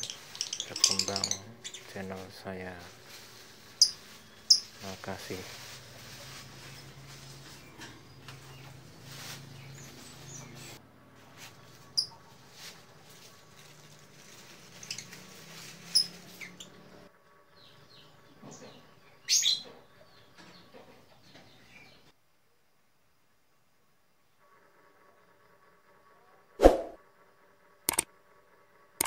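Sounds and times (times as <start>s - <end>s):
lovebirds chirping: 0.0s - 10.8s.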